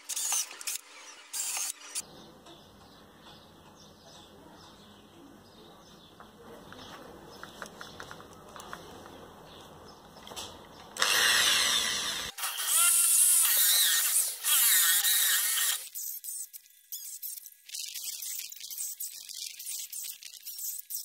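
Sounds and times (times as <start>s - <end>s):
cordless drill boring into wood: 0.0s - 2.0s, 11.0s - 16.1s.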